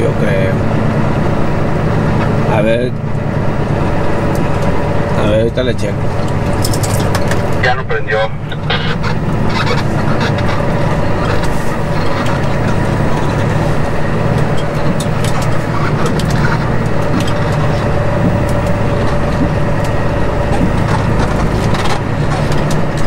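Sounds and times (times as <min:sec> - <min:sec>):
diesel truck engine running: 0:00.0 - 0:23.0.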